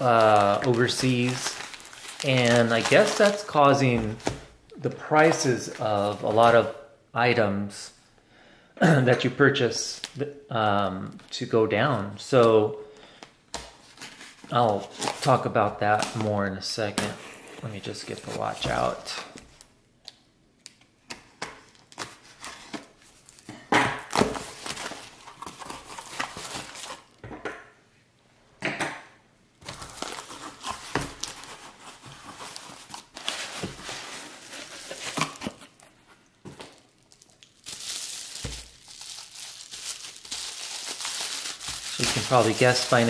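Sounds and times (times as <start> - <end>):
bubble wrap crinkling: 0.0 - 4.4, 29.6 - 43.0.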